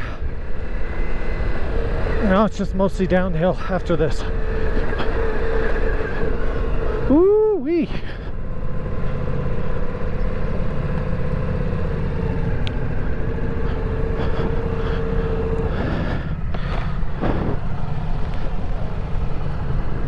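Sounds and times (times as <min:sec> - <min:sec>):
motorcycle engine running: 0:00.0 - 0:20.0
steady whine: 0:00.0 - 0:20.0
tyres rolling over gravel: 0:13.4 - 0:20.0.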